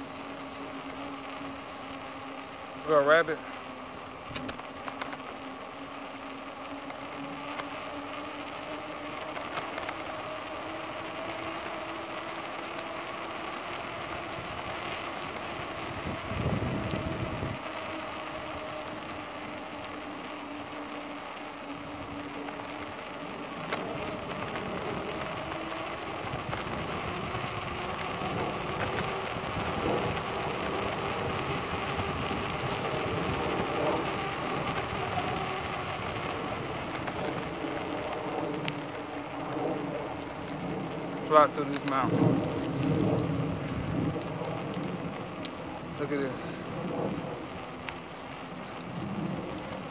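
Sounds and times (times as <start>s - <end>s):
bicycle tyres hissing on pavement: 0.0s - 49.9s
wind on microphone: 15.5s - 17.7s, 41.9s - 49.9s.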